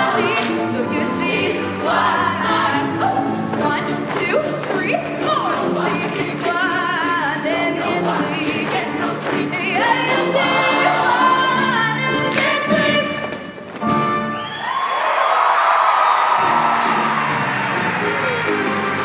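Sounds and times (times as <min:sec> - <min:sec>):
choir singing with music: 0:00.0 - 0:13.6.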